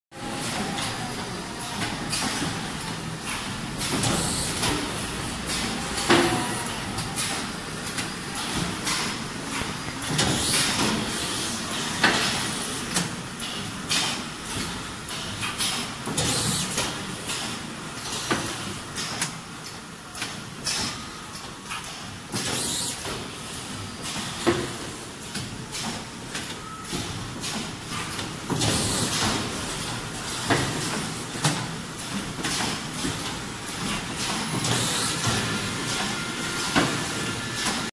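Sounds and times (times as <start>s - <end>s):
steady machine noise: 27.7s - 37.9s.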